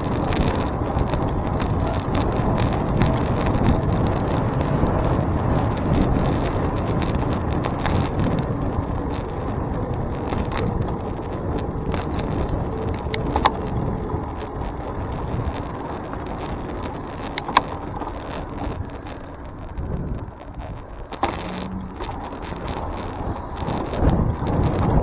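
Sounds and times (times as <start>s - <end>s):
bicycle road and wind noise: 0.0s - 25.0s
sharp clicks: 16.3s - 25.0s.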